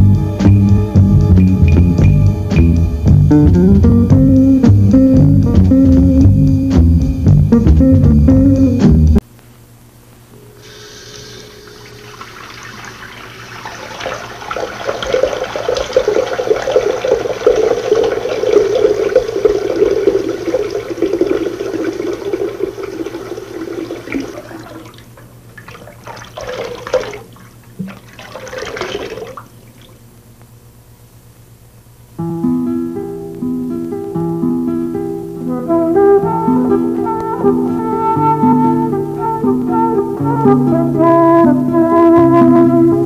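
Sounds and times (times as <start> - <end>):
water gushes: 10.6 - 30.0
water running: 10.6 - 30.1.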